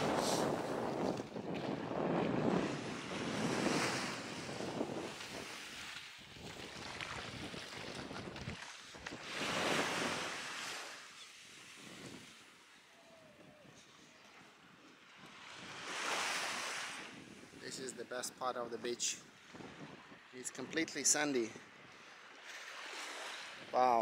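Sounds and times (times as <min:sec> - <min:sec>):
wind gusting on microphone: 0:00.0 - 0:10.5, 0:15.2 - 0:18.0, 0:19.2 - 0:20.8
small waves washing on shore: 0:00.0 - 0:12.9, 0:15.0 - 0:17.7, 0:19.3 - 0:23.8.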